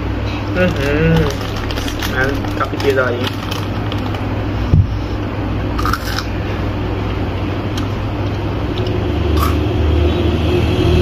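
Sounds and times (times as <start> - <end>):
low background hum: 0.0 - 11.0
chips crunching while chewed: 0.6 - 4.3, 5.7 - 6.3, 8.8 - 9.6.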